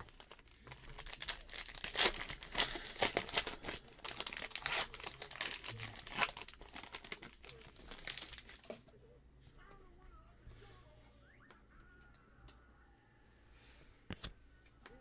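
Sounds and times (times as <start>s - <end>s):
plastic wrapper crinkling and tearing: 0.0s - 8.8s.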